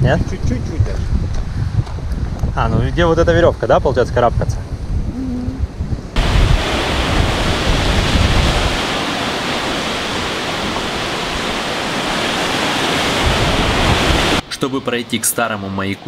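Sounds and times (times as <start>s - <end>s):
wind buffeting microphone: 0.0s - 14.4s
surf breaking on rocks: 6.2s - 14.4s.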